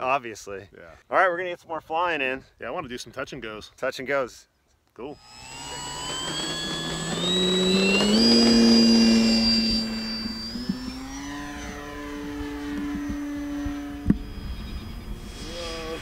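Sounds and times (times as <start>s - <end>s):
electric motor and propeller whine: 5.2s - 16.0s.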